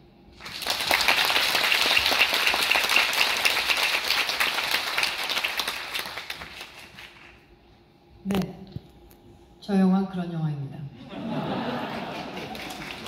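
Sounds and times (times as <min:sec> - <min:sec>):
audience applauding: 0:00.4 - 0:07.4, 0:11.6 - 0:13.0.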